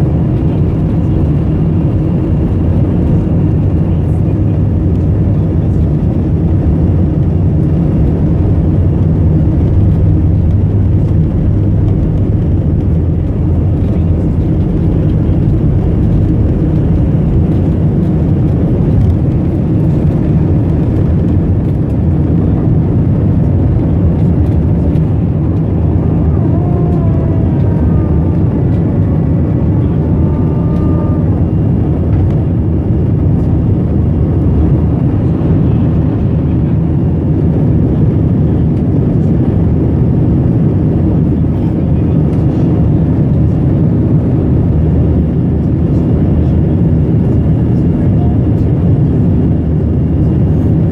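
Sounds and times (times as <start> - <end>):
jet engine cabin roar: 0.0 - 50.9.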